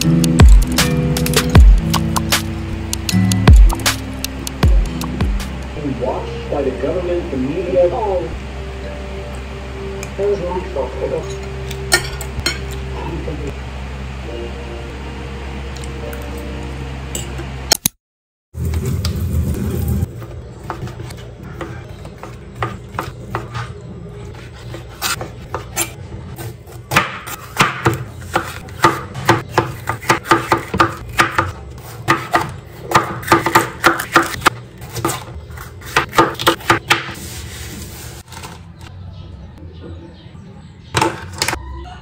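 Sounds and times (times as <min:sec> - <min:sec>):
knife chopping on board: 0:24.7 - 0:37.2.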